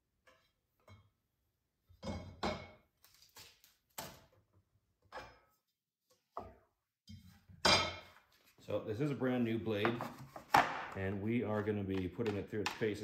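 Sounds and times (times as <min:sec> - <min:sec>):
hard objects knocking and clunking: 0:09.7 - 0:13.0.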